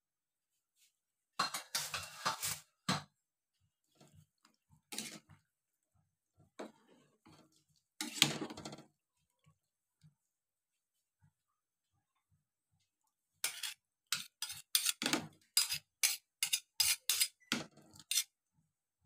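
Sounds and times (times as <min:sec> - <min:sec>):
metal ladle scraping pot: 0:01.4 - 0:02.7, 0:04.9 - 0:05.3, 0:06.6 - 0:08.7, 0:13.4 - 0:18.3.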